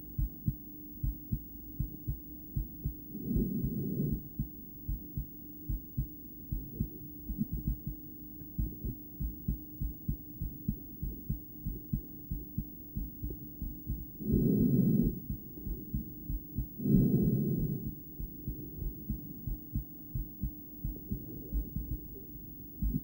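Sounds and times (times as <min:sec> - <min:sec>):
faint steady hum: 0:00.0 - 0:23.0
heartbeat through stethoscope: 0:00.0 - 0:23.0.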